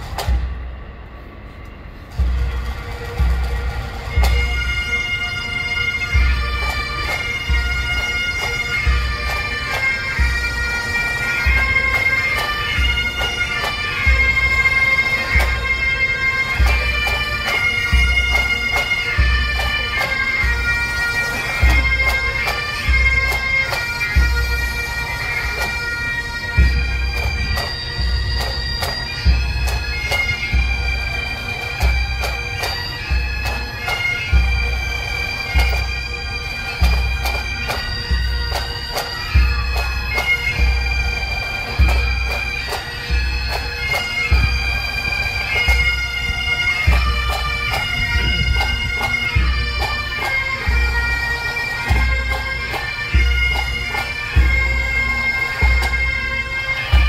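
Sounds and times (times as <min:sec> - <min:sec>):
bagpipes playing slow melody: 0:00.0 - 0:57.0.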